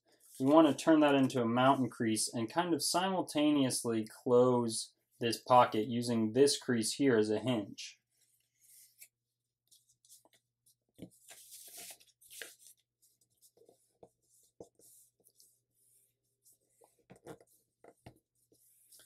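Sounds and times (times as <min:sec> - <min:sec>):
paper crackling and rustling: 0:09.7 - 0:15.4.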